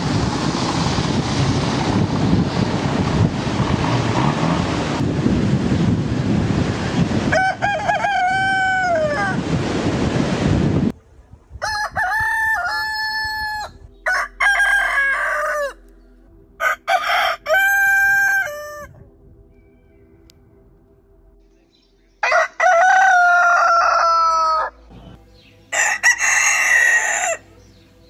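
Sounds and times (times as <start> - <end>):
heavy wind-like noise: 0.0 - 21.4
roosters crowing: 7.2 - 9.6, 11.6 - 15.9, 16.6 - 19.0, 22.2 - 24.8, 25.7 - 27.5.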